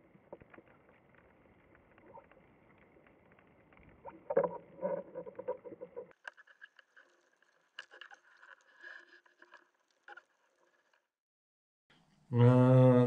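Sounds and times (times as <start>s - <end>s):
clicks and crackles: 0.0s - 11.1s.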